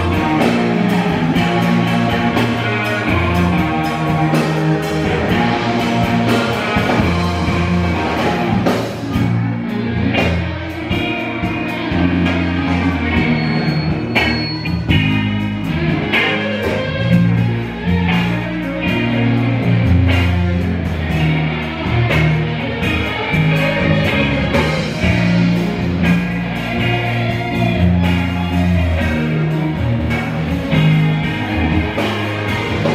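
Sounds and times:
drum beat: 0.0 - 9.4
bass guitar line: 0.0 - 32.9
electric guitars: 0.0 - 32.9.

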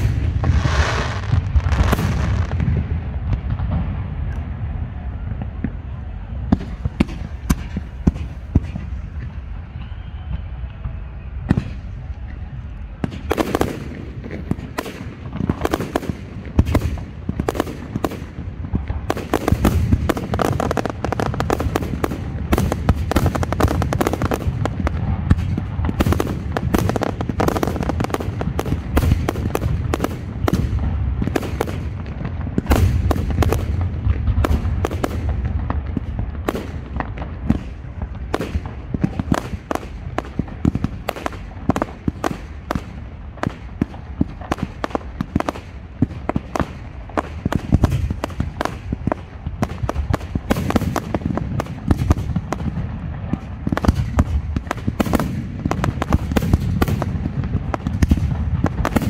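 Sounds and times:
sharp firework bangs: 0.0 - 4.1, 6.5 - 9.5, 13.0 - 59.0
fireworks launches and bursts: 0.0 - 59.0.

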